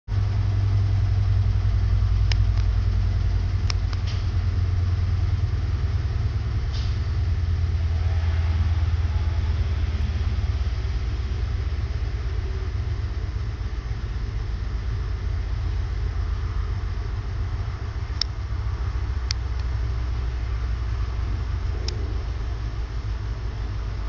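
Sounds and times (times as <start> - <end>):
low mechanical hum: 0.1 - 24.0
faint clicks: 2.3 - 2.8, 3.6 - 4.2, 18.2 - 18.4, 21.8 - 22.0.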